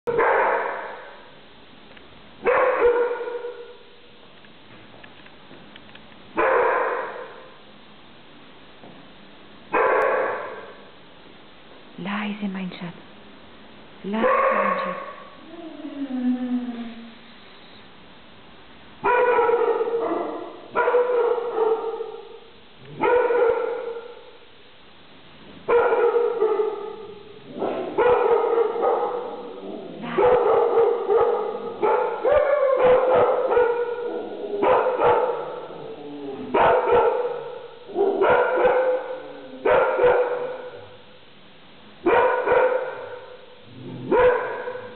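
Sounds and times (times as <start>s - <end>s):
dogs barking: 0.1s - 1.4s, 2.4s - 3.9s, 6.4s - 7.6s, 9.7s - 10.9s, 14.1s - 15.4s, 19.0s - 24.4s, 25.7s - 41.0s, 42.0s - 44.9s.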